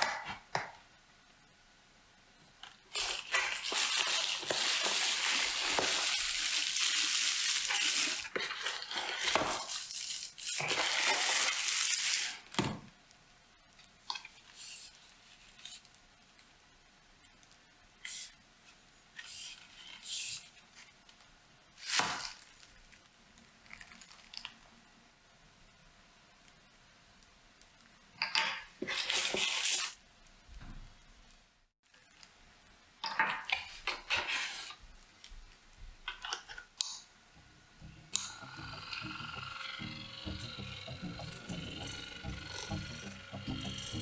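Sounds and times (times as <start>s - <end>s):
plastic wrap crinkling: 2.9s - 12.6s, 21.8s - 24.7s
plastic wrap tearing: 2.9s - 12.6s, 21.8s - 24.6s.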